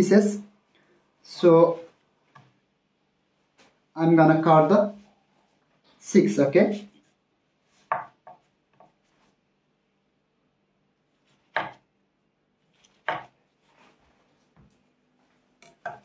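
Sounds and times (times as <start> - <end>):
knife knocking on chopping board: 11.6 - 11.8, 13.1 - 13.3.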